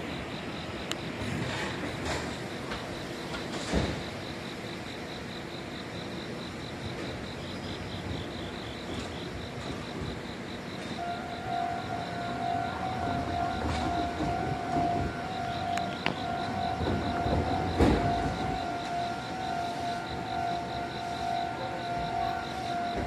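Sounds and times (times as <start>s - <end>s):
station noise: 0.0s - 23.0s
high pulsing beeps: 11.0s - 23.0s
steady tone: 11.0s - 23.0s.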